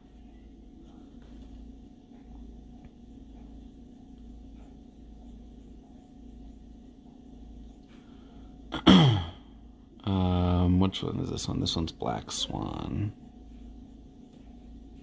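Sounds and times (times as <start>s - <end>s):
steady low hum: 0.0s - 15.0s
pen scratching on paper: 2.1s - 6.9s.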